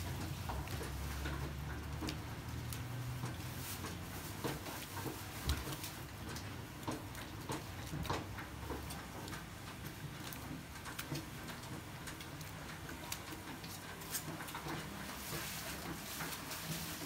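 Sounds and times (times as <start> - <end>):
water splashing and dripping: 0.0 - 17.0.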